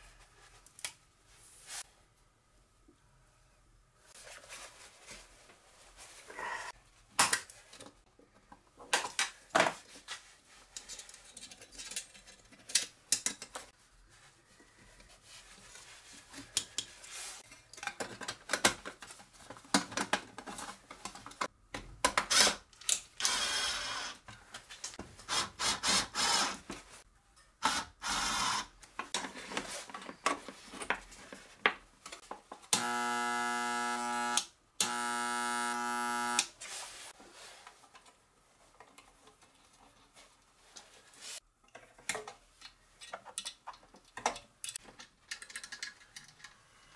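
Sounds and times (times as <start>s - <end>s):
steady electrical buzz: 32.8s - 36.5s.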